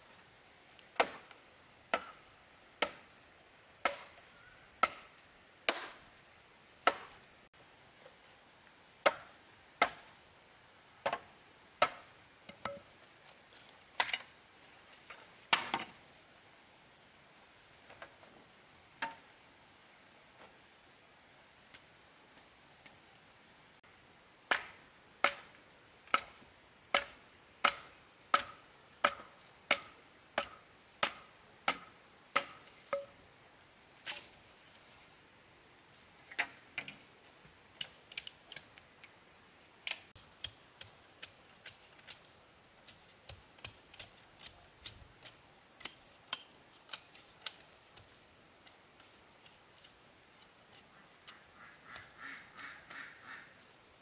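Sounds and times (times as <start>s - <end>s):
blade chopping wood: 3.8s - 4.2s, 5.7s - 6.0s, 6.8s - 7.2s, 9.1s - 10.0s, 24.5s - 25.5s, 26.9s - 33.1s.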